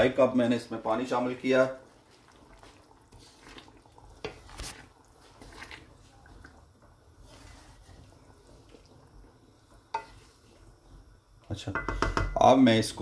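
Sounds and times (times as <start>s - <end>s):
curry sloshing in pan: 0.7s - 11.2s
spatula knocking metal pan: 11.7s - 12.4s.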